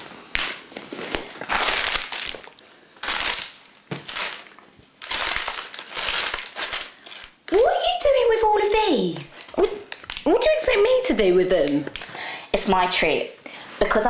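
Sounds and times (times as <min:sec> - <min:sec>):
paper bag crinkling and rustling: 0:00.6 - 0:10.7.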